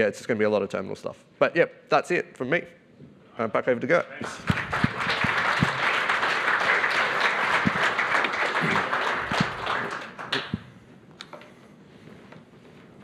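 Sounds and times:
audience applause: 4.2 - 10.7.

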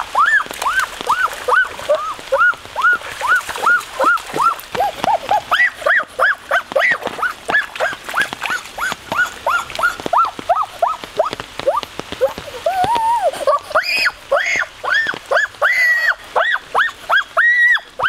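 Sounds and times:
animal yelping: 1.5 - 11.3.

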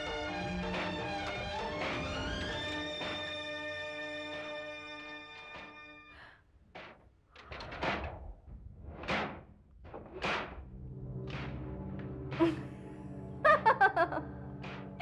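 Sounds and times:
low background music drone: 0.0 - 6.2, 10.2 - 15.0
woman laughing: 12.4 - 12.8, 13.4 - 14.3.

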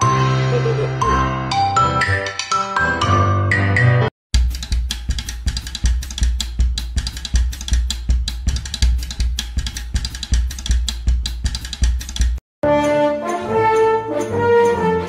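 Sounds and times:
fast drum kit beat: 4.4 - 12.4.

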